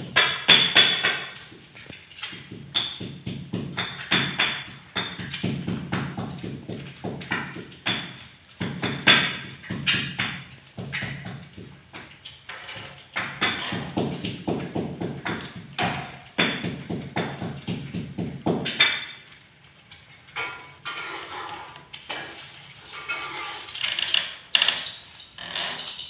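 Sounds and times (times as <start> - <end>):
knocks: 0.0 - 1.4, 2.3 - 19.1.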